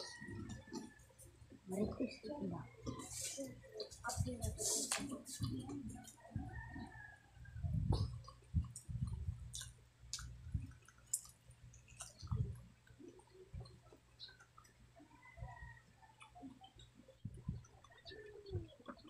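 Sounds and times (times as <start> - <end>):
wet chewing and lip smacks: 0.0 - 1.8, 7.9 - 14.8, 16.0 - 18.2.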